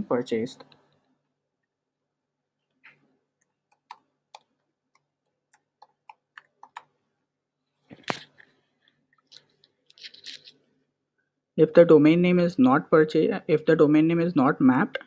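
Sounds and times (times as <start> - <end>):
keyboard typing clicks: 3.7 - 6.9.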